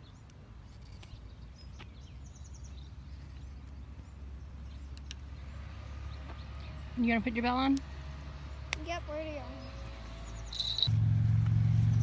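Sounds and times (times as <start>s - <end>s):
low outdoor rumble: 0.0s - 12.0s
faint bird chirps: 9.3s - 10.9s.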